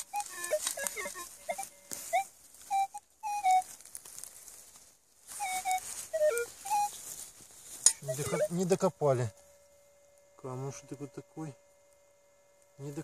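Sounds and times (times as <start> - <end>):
metal detector beeps: 0.0 - 3.7, 5.4 - 7.1, 7.7 - 9.7
hissy rustling noise: 0.0 - 8.8.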